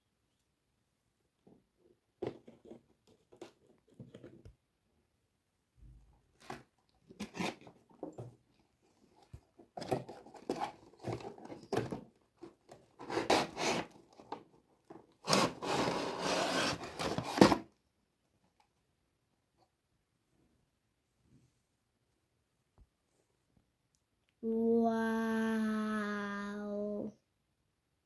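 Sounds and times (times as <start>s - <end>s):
cardboard rubbing and scraping: 13.0s - 14.0s, 15.2s - 17.6s
cardboard tray sliding out: 15.4s - 17.6s.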